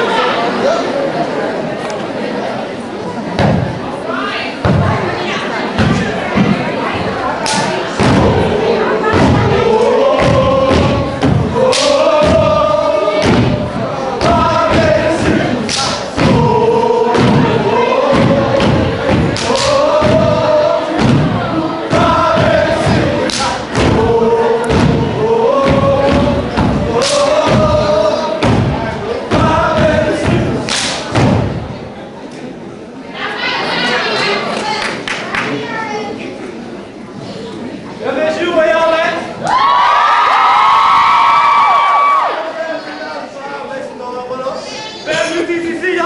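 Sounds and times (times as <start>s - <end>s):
group chanting in unison: 5.8s - 31.5s
stomping and clapping: 7.4s - 8.5s, 10.2s - 12.6s, 14.2s - 16.5s, 18.1s - 20.4s, 21.0s - 31.6s.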